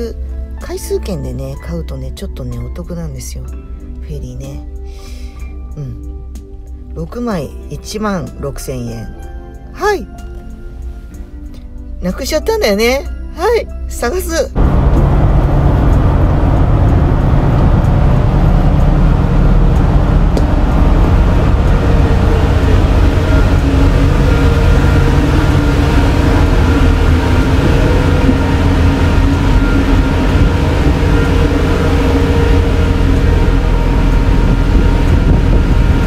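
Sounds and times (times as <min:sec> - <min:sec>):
droning hum: 0:14.6 - 0:36.0
ferry engines rumbling: 0:14.6 - 0:36.0.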